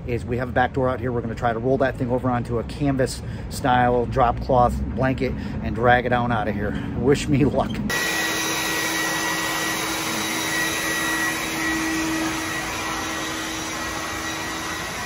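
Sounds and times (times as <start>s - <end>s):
shop vacuum running: 7.9s - 15.0s.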